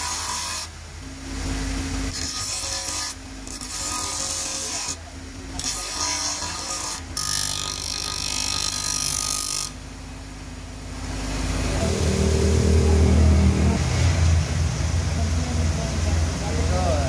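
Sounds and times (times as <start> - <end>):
low droning engine hum: 0.7 - 17.0
grinder motor humming: 1.4 - 9.8
wood grinding on grinder disc: 2.1 - 5.0, 5.6 - 9.8.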